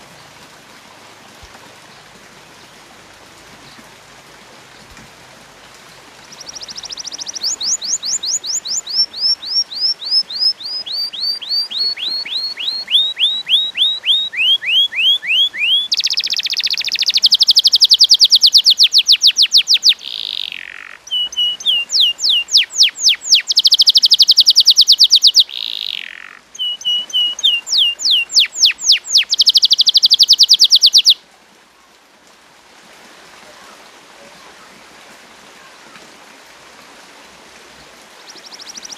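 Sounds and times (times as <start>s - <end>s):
canary singing: 6.3s - 31.2s.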